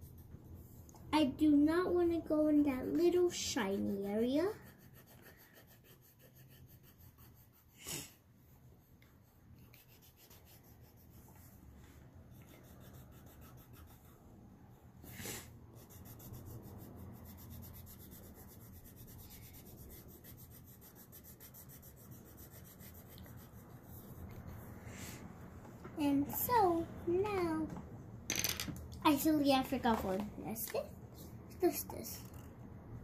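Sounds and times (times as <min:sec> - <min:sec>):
crayon scribbling on paper: 0:00.0 - 0:00.8, 0:02.4 - 0:11.6, 0:12.3 - 0:14.2, 0:15.2 - 0:24.7.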